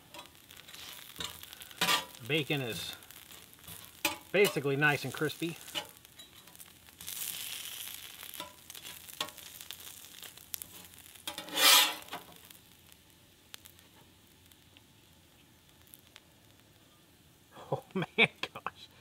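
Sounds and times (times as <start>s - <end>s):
bacon sizzling on griddle: 0.0s - 18.0s
spatula tapping metal griddle: 0.1s - 2.2s, 3.1s - 4.6s, 8.3s - 9.5s, 10.7s - 12.3s
spatula scraping griddle: 0.1s - 7.5s, 10.6s - 12.3s.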